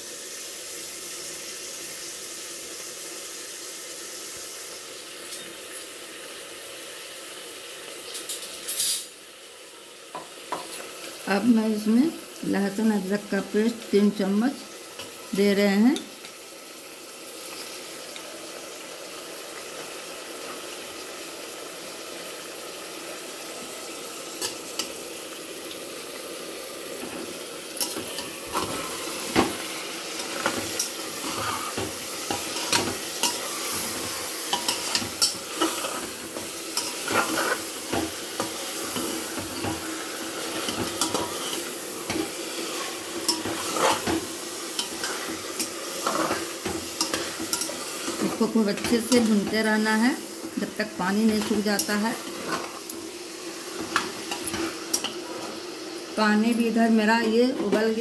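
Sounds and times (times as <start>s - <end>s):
meat sizzling in oil: 0.0s - 58.0s
metal ladle scraping pot: 40.6s - 44.2s.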